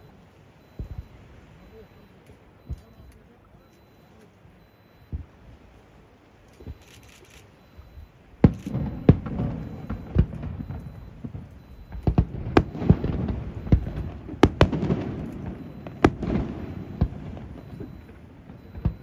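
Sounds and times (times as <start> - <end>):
fireworks bangs: 0.7 - 2.0, 8.4 - 19.0.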